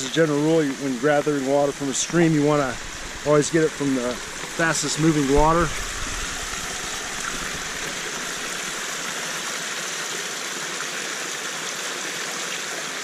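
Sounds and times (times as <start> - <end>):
water bottle being filled: 0.0 - 9.3
stream rushing over rocks: 0.0 - 13.0.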